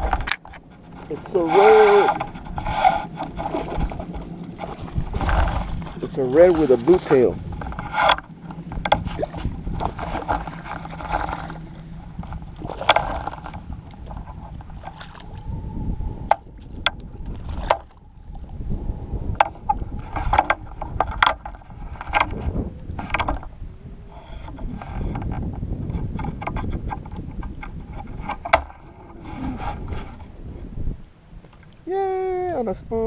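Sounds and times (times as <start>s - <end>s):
sharp clicks and knocks: 0.0s - 1.3s, 1.9s - 11.5s, 19.4s - 22.4s, 25.1s - 28.8s
low rumble: 0.0s - 31.2s
water sloshing: 0.0s - 32.7s
wind buffeting camera: 0.0s - 33.0s.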